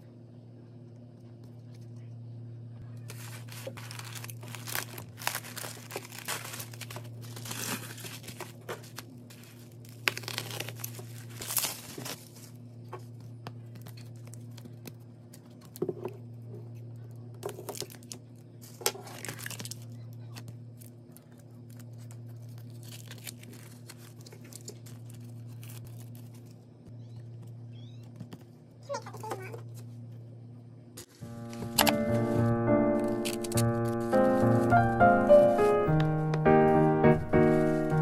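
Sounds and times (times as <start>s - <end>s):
steady low hum: 0.0s - 38.0s
cardboard and paper rustling: 3.0s - 26.6s, 31.0s - 38.0s
packing tape tearing: 3.1s - 12.5s, 17.5s - 19.9s, 21.7s - 26.5s, 31.4s - 36.2s.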